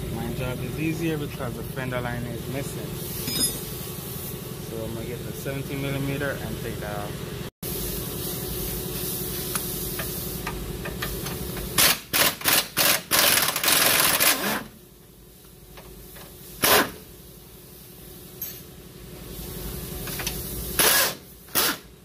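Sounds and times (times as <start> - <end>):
steady hum: 0.0 - 12.0
pneumatic impact wrench: 11.2 - 14.8, 16.2 - 17.1, 20.0 - 22.0.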